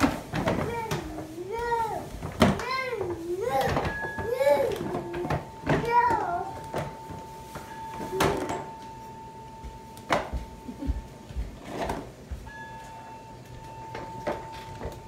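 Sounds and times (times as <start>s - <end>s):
faint steady high tone: 2.8s - 11.1s, 12.4s - 15.0s.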